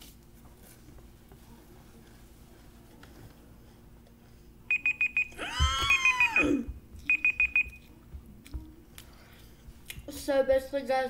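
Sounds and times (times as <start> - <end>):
short high timer beeps: 4.7 - 6.5, 7.1 - 7.8
person making drawn-out vocal sound: 5.4 - 6.7.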